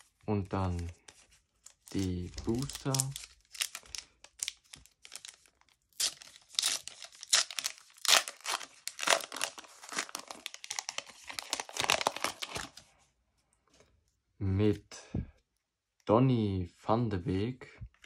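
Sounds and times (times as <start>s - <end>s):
card packet wrapper tearing: 1.6s - 12.8s.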